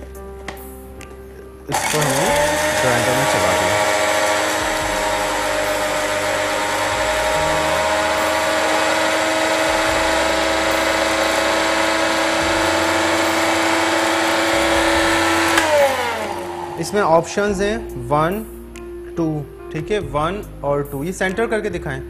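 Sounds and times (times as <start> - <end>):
spice grinder motor whining: 1.7 - 17.6
grinder blades spinning down: 1.7 - 17.8.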